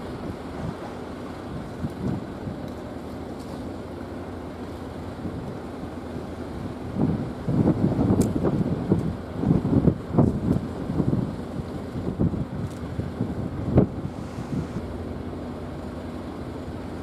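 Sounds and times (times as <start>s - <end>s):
wind buffeting microphone: 0.0s - 3.0s, 6.4s - 14.8s
low steady rumble: 0.0s - 17.0s.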